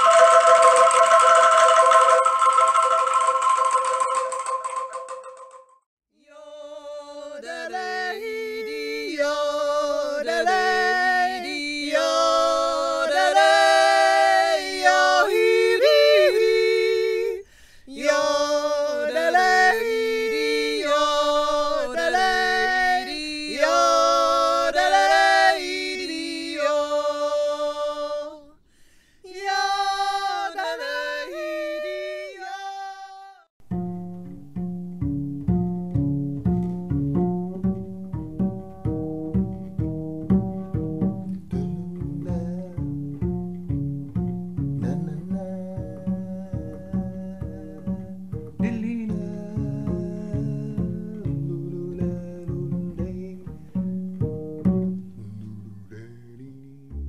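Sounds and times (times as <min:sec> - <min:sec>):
two voices singing unaccompanied: 0:06.2 - 0:28.6, 0:29.2 - 0:33.5, 0:41.4 - 0:43.4, 0:44.7 - 0:53.9, 0:55.2 - 0:57.0.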